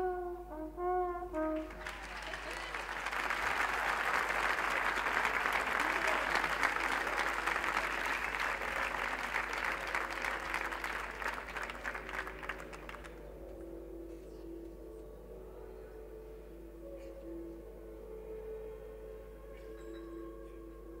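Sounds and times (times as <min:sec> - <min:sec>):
audience applause: 0:01.6 - 0:13.2.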